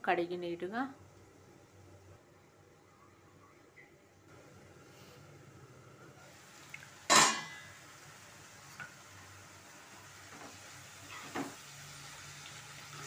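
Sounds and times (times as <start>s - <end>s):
pan lid clanking: 7.1s - 7.7s.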